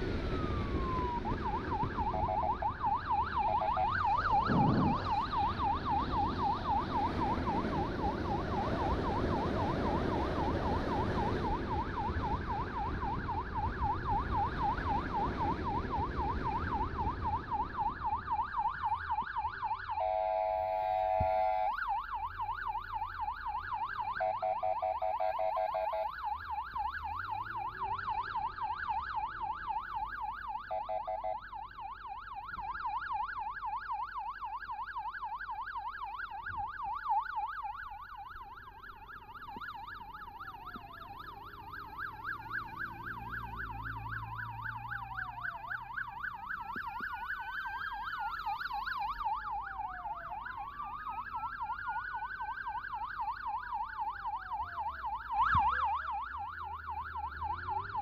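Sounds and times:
rapid pulsing siren tone: 0:00.0 - 0:58.0
wailing siren: 0:00.0 - 0:58.0
warbling emergency siren: 0:00.0 - 0:58.0.

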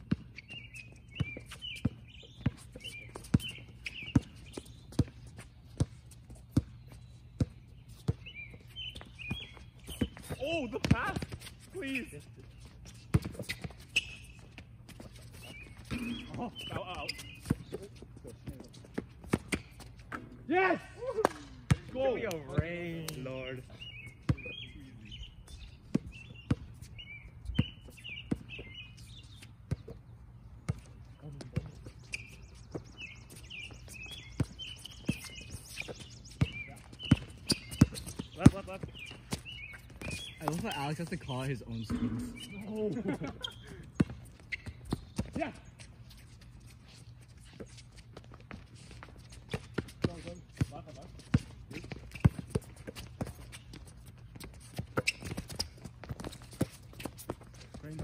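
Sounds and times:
basketball bouncing on hard court: 0:00.0 - 0:00.4, 0:01.1 - 0:05.2, 0:08.9 - 0:11.5, 0:13.1 - 0:14.7, 0:21.7 - 0:22.7, 0:25.9 - 0:26.7, 0:34.4 - 0:40.8, 0:41.9 - 0:45.4, 0:49.5 - 0:53.6
birds chirping: 0:00.0 - 0:20.6, 0:21.7 - 0:58.0.

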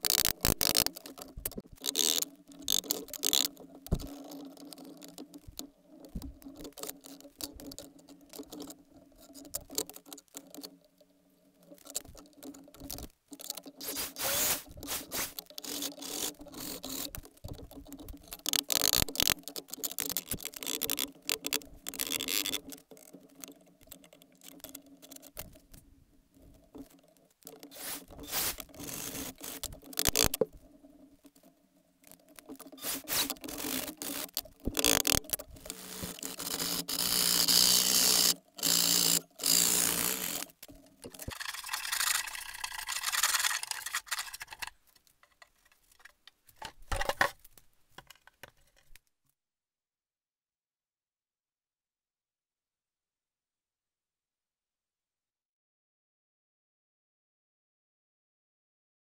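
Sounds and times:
hand scraping on wood: 0:13.7 - 0:17.2, 0:27.6 - 0:30.5, 0:32.6 - 0:38.3.

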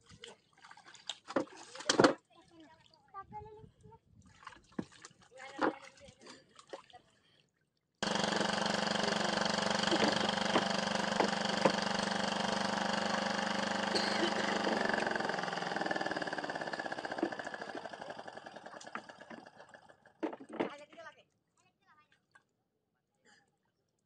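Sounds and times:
engine running steadily: 0:08.0 - 0:20.2.

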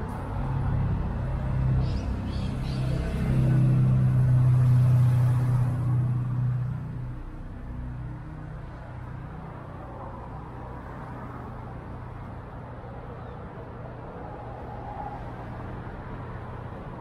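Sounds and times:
vehicle engine droning past: 0:00.0 - 0:08.4.

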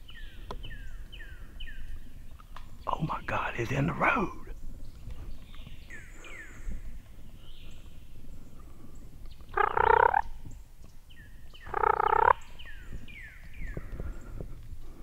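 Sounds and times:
turkeys gobbling: 0:09.6 - 0:10.3, 0:11.7 - 0:12.4.

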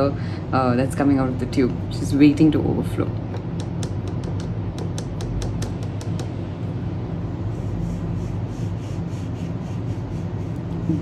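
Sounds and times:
steady low hum: 0:00.0 - 0:11.0
brush on paper: 0:07.5 - 0:10.8.

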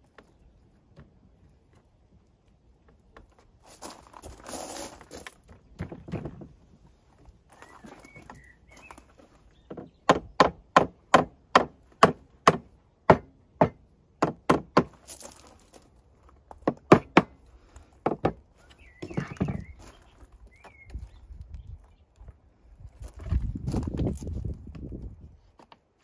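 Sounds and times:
hammer striking timber: 0:09.7 - 0:15.0, 0:16.6 - 0:17.4.

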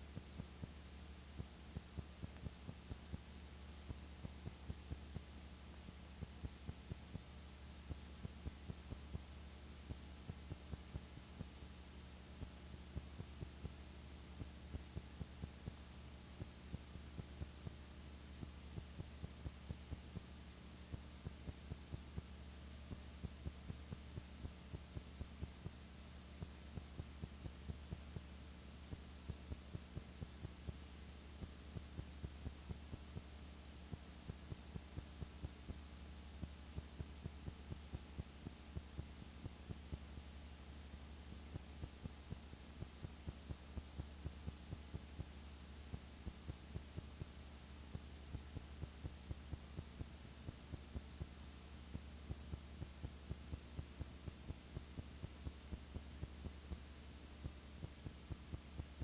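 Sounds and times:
low electrical hum: 0:00.0 - 0:59.0
faint ticking clicks: 0:00.1 - 0:59.0.

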